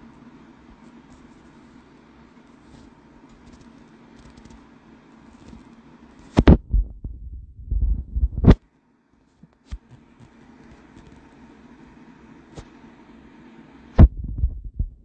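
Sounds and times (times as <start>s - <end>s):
faint steady hum: 0.0s - 15.0s
microphone handling knocks: 6.4s - 8.6s
low rumbling: 6.5s - 8.5s, 14.0s - 15.0s.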